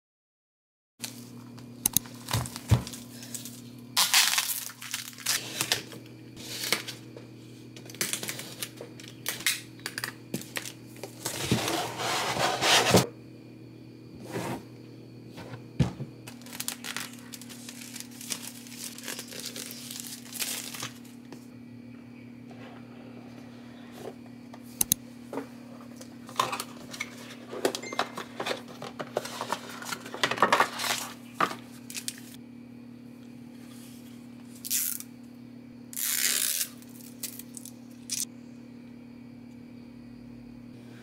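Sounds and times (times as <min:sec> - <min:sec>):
steady low hum: 0:01.0 - 0:41.0
plastic wrap crinkling: 0:02.1 - 0:05.9, 0:16.2 - 0:21.2
cardboard packaging handled: 0:16.2 - 0:21.2, 0:26.7 - 0:32.2.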